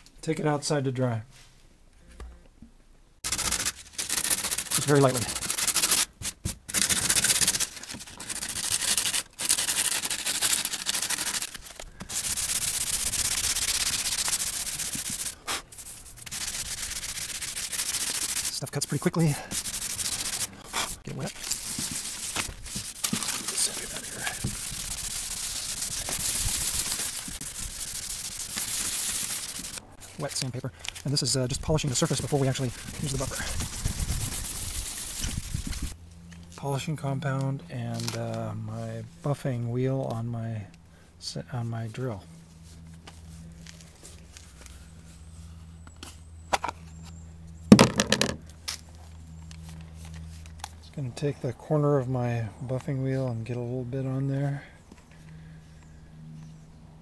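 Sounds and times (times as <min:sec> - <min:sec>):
steady low hum: 0:01.8 - 0:57.0
sandpaper rubbing scratchy hiss: 0:03.2 - 0:36.0
plastic tub rattling: 0:47.7 - 0:48.4.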